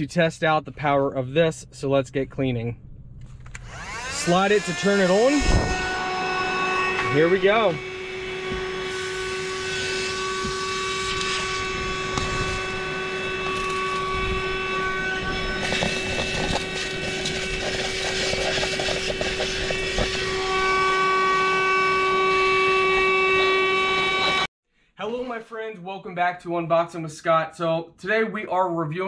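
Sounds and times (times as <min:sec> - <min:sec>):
handheld vacuum motor whine: 0:03.4 - 0:24.5
scattered crackles: 0:15.6 - 0:20.2.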